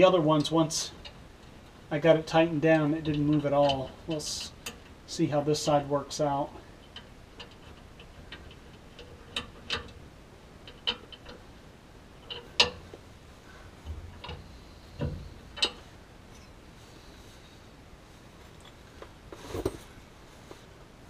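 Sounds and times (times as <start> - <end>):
metallic clicks of bolts and washers: 10.6 - 11.4, 12.2 - 12.9, 13.9 - 14.4, 15.0 - 16.5.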